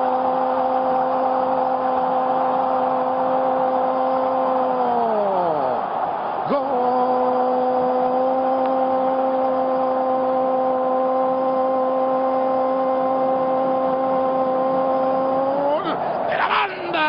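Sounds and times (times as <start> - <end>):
stadium crowd noise: 0.0 - 17.0.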